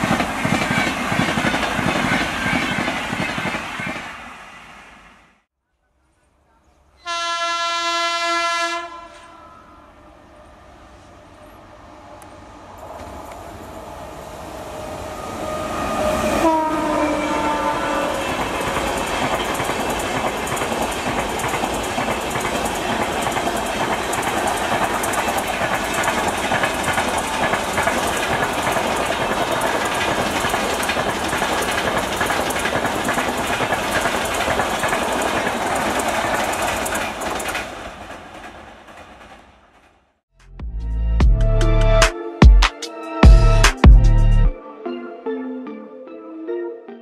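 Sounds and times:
locomotive horn: 7.0 - 10.0, 15.2 - 18.8
train wheels clattering over rails: 18.2 - 40.1.

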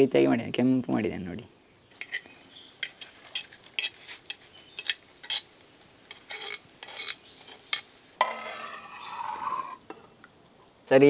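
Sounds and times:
metal spoon scraping a pan: 2.0 - 5.5, 6.1 - 10.0.

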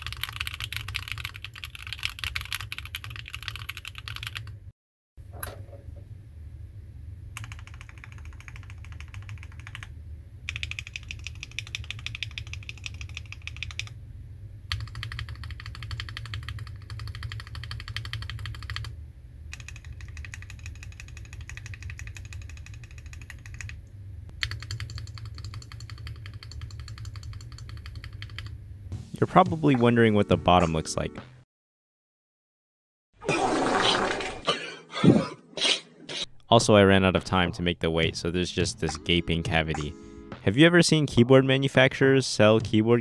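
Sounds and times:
mechanical keyboard typing: 0.0 - 4.6, 7.4 - 9.9, 10.5 - 13.9, 14.7 - 18.9, 19.5 - 23.8, 24.4 - 28.5
steady low hum: 4.5 - 28.9, 36.4 - 43.0.

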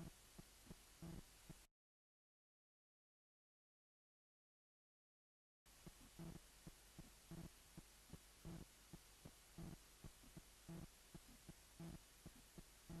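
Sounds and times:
heartbeat thumps: 5.8 - 13.0.

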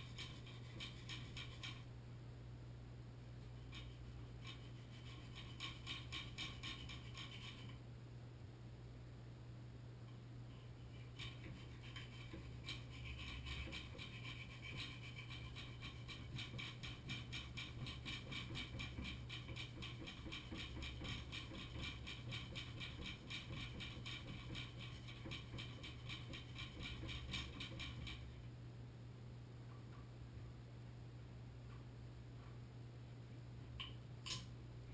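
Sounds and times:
hand tool rasping against metal: 0.0 - 1.8, 3.7 - 7.7, 11.0 - 28.3.

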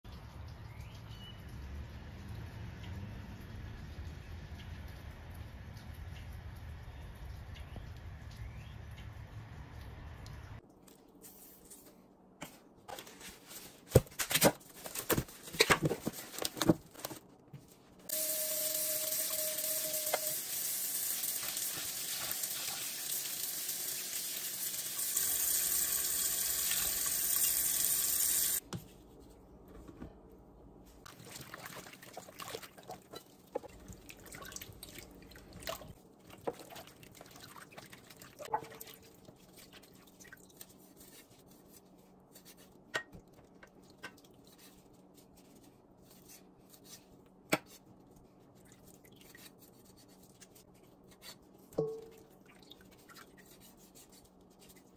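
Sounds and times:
water running into steel sink: 18.1 - 28.6
soft splashes and rubbing: 30.8 - 42.8, 47.9 - 54.9.

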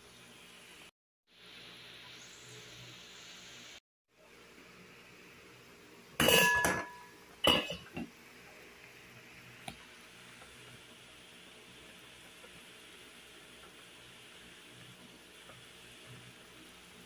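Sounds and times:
boiling soup hissing: 0.0 - 17.0
glass lid clinking on steel pot: 6.2 - 8.1.

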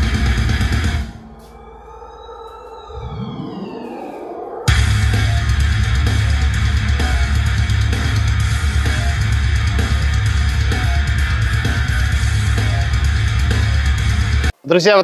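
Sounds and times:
heavy rock music through speaker: 0.0 - 1.6, 4.6 - 14.5.

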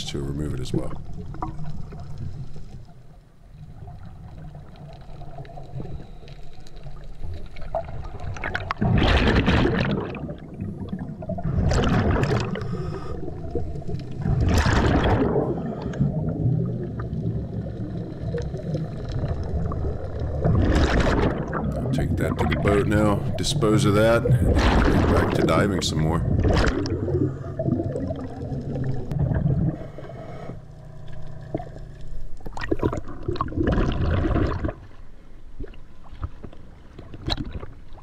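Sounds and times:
underwater air bubbles gushing: 0.0 - 2.9, 3.5 - 35.0
low steady rumble: 0.0 - 37.0.

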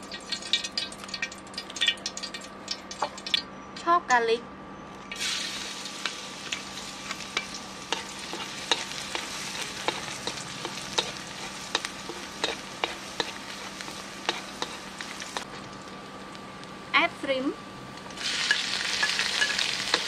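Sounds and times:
garlic sizzling in oil: 0.0 - 3.4, 5.1 - 17.2, 18.0 - 20.0
wooden spatula stirring in wok: 7.9 - 15.6.

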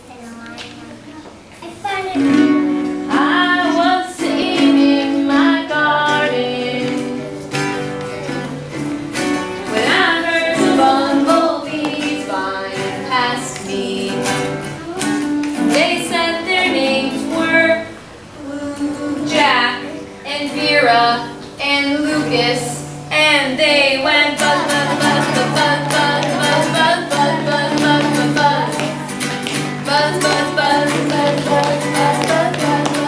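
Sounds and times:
acoustic guitar: 0.0 - 33.0
children singing along: 2.2 - 33.0
woman singing: 2.9 - 8.6, 9.6 - 33.0.

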